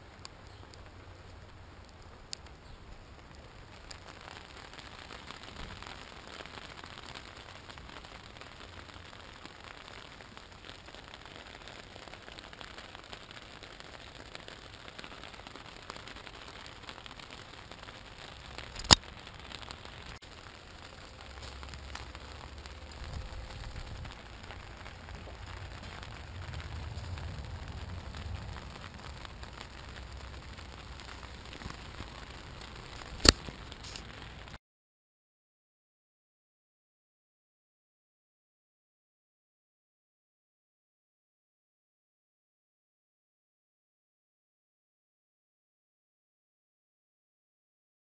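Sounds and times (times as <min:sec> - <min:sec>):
rain on a tarp: 0:00.0 - 0:34.6
low rumble: 0:21.0 - 0:30.9.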